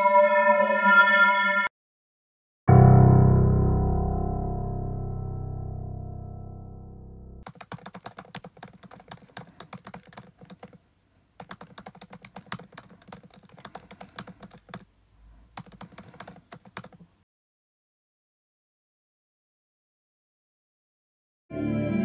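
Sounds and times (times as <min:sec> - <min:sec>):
rapid keyboard typing clicks: 0:07.4 - 0:10.8, 0:11.4 - 0:14.9, 0:15.5 - 0:17.2.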